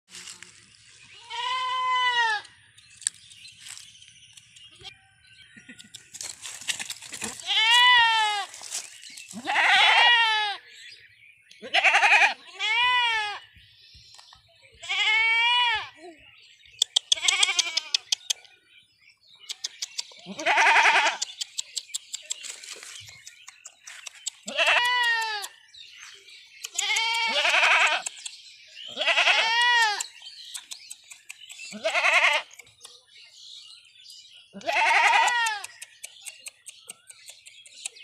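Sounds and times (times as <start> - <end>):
animal bleating: 1.1 - 2.5, 7.2 - 8.6, 9.3 - 10.6, 11.6 - 13.4, 14.8 - 16.0, 17.1 - 18.1, 20.2 - 21.2, 24.4 - 25.6, 26.7 - 28.1, 28.9 - 30.1, 31.7 - 32.6, 34.5 - 35.8
quick sharp clicks: 30.0 - 31.7, 35.2 - 38.0.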